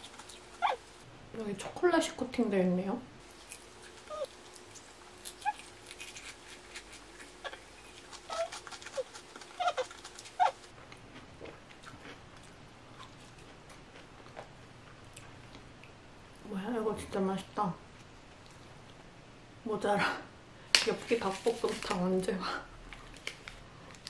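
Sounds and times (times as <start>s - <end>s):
chewing crunchy wafer: 3.2s - 16.0s.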